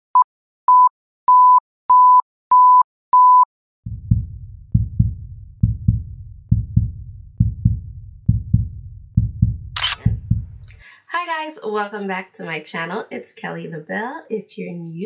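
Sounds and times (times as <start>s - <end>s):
short electronic beeps: 0.7s - 3.5s
music with thumping bass beat: 3.9s - 10.6s.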